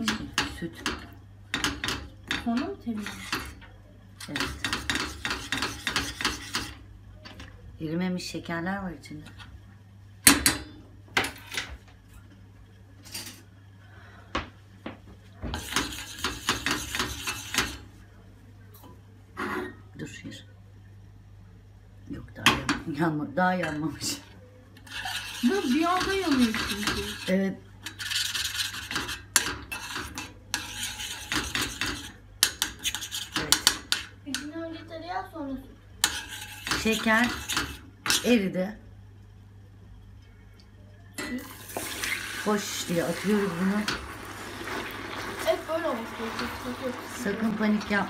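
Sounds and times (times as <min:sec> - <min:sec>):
metal spoon scraping pot: 0:02.6 - 0:03.5, 0:04.2 - 0:06.8, 0:24.8 - 0:34.1, 0:36.0 - 0:38.4.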